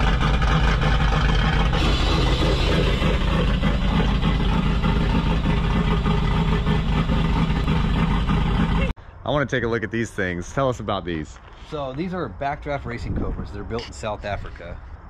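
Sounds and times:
vehicle engine idling: 0:00.0 - 0:09.1.

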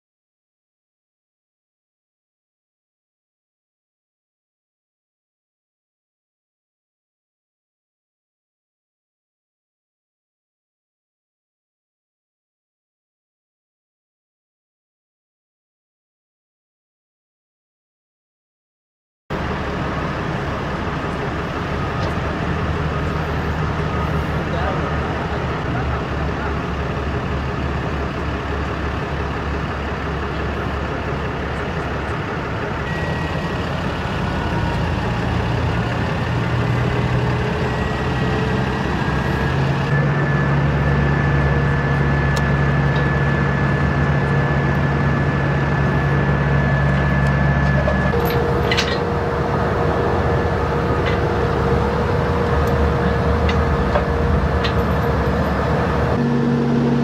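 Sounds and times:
truck diesel engine rumbling: 0:19.3 - 0:57.0.

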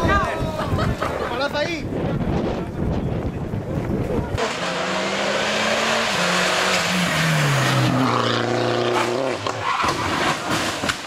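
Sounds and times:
race car engine revving: 0:04.4 - 0:09.6
car crashing into barrier: 0:09.4 - 0:11.0.

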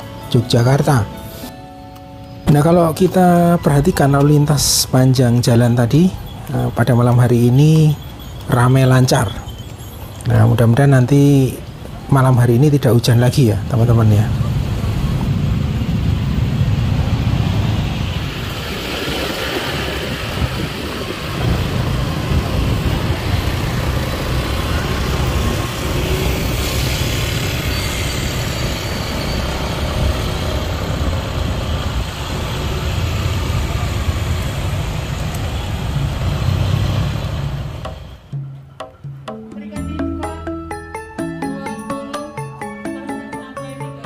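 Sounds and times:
passing vehicle engines: 0:00.0 - 0:38.4.

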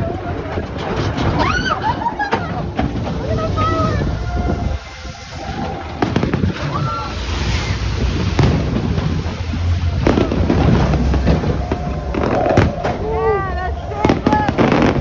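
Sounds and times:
low rumble: 0:00.0 - 0:15.0
fireworks bangs with crackle: 0:05.6 - 0:13.2, 0:13.9 - 0:15.0.

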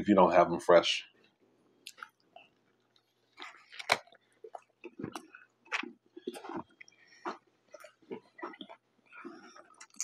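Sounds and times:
person chewing: 0:01.3 - 0:10.0
lip smacks: 0:01.8 - 0:10.0.

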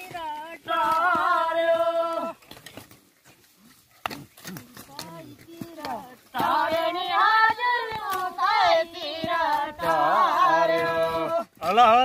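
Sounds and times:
women singing unaccompanied: 0:00.0 - 0:02.4, 0:04.9 - 0:11.6
hoes knocking in soil: 0:00.0 - 0:11.8.

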